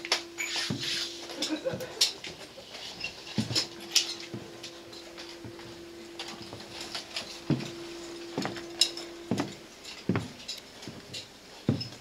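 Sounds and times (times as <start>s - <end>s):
steady hum: 0.0s - 12.0s
footsteps on plywood floor: 4.3s - 4.6s, 5.4s - 5.8s, 7.4s - 11.1s, 11.7s - 12.0s.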